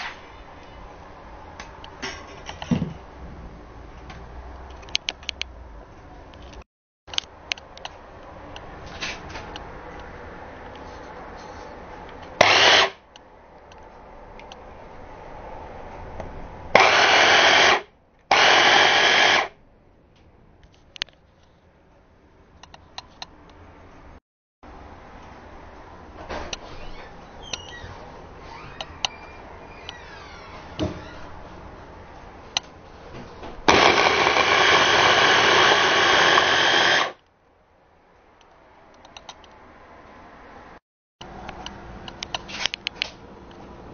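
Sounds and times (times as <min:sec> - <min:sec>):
hand blender chopping: 0:12.4 - 0:13.0, 0:16.8 - 0:19.5, 0:33.7 - 0:37.2.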